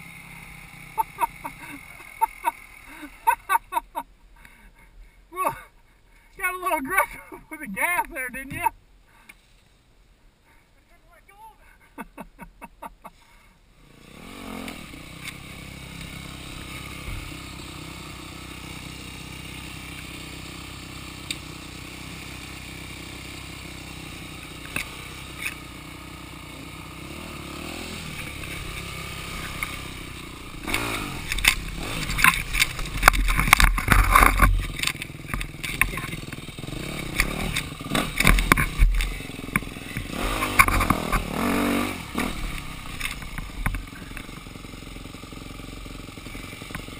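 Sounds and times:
dirt bike engine revving: 0:00.0 - 0:03.8, 0:13.7 - 0:46.9
clatter and scraping on rough trail: 0:00.0 - 0:09.7, 0:13.0 - 0:46.9.

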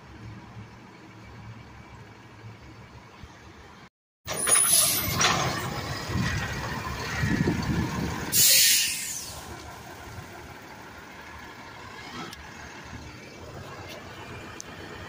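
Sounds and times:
diesel engine rumbling: 0:00.0 - 0:15.0
air-brake hiss: 0:08.3 - 0:09.5.

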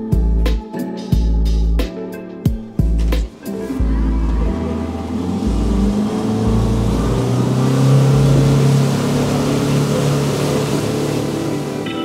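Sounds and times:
speedboat engine: 0:03.0 - 0:12.0
water and wind rushing: 0:03.2 - 0:12.0.

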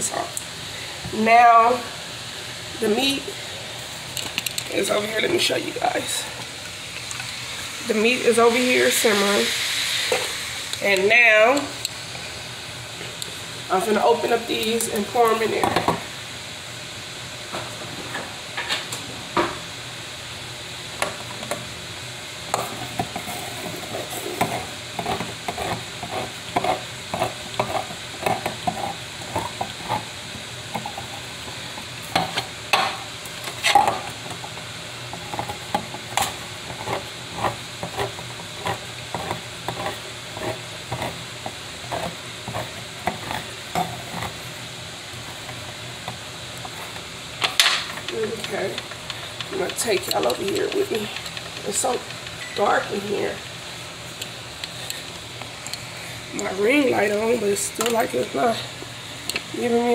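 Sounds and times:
ground beef sizzling: 0:06.4 - 0:17.4, 0:19.6 - 0:50.2.

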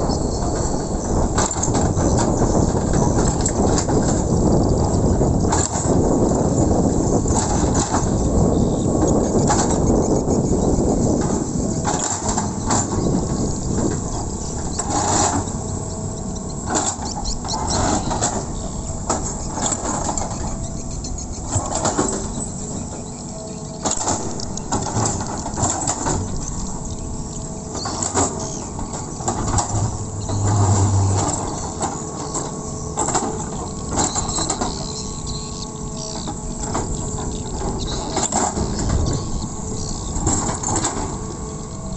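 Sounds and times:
excavator diesel engine running: 0:00.0 - 0:41.9
metal clanks: 0:23.8 - 0:35.0
bucket scraping soil: 0:29.5 - 0:31.8.

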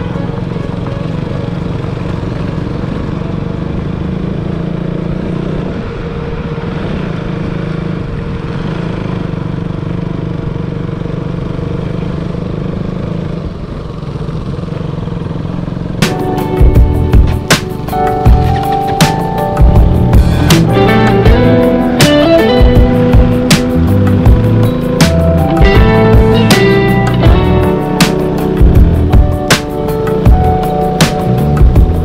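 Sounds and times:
motorcycle engine on dirt road: 0:00.0 - 0:32.0
music with sharp beats: 0:16.0 - 0:32.0.

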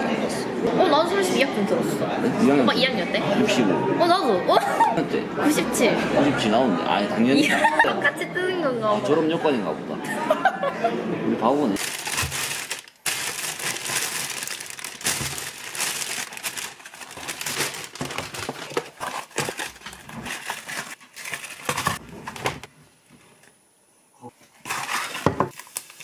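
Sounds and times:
packaging crinkling and rustling: 0:11.8 - 0:22.7, 0:24.6 - 0:26.0.

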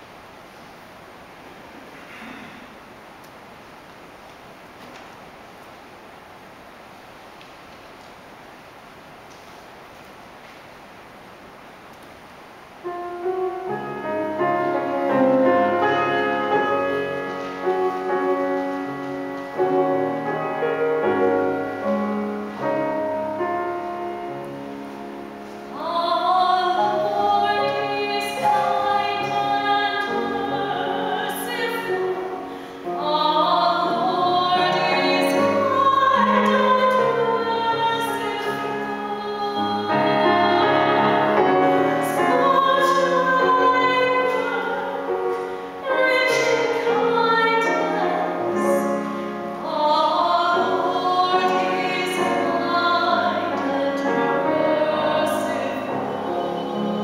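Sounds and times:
slow keyboard music: 0:12.9 - 0:57.0
woman singing: 0:25.6 - 0:57.0.

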